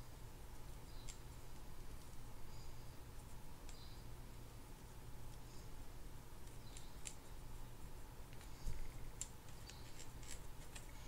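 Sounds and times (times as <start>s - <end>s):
low steady hum: 0.0s - 11.0s
brush scratching and clicking: 8.3s - 11.0s.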